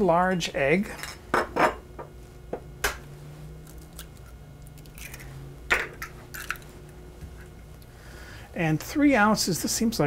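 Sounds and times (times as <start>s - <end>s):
egg cracking on glass bowl: 3.7s - 5.3s.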